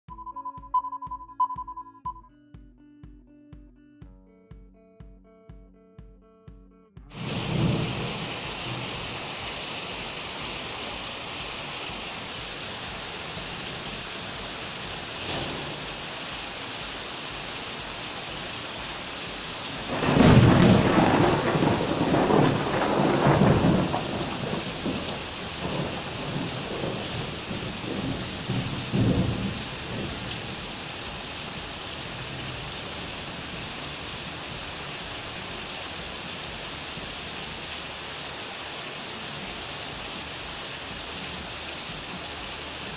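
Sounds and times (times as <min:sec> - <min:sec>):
rain hissing: 0:07.1 - 0:42.9
rumbling thunder: 0:07.2 - 0:09.3, 0:15.0 - 0:16.6, 0:19.7 - 0:31.0.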